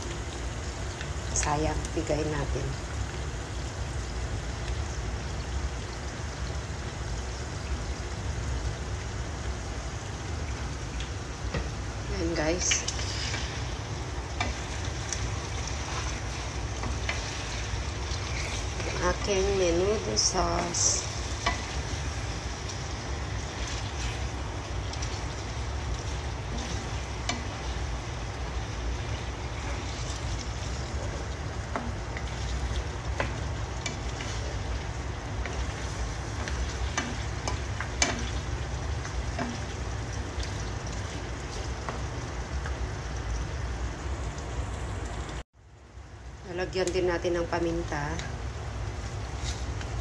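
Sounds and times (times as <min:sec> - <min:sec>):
meat sizzling in a pan: 0:00.0 - 0:50.0
wooden spatula scraping pan: 0:12.6 - 0:13.8, 0:14.4 - 0:22.3.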